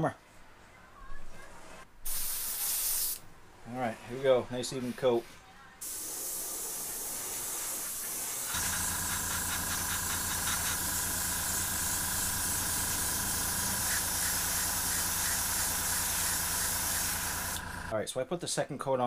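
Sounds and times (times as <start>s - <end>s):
airbrush spraying hiss: 2.0s - 3.2s, 5.8s - 17.9s.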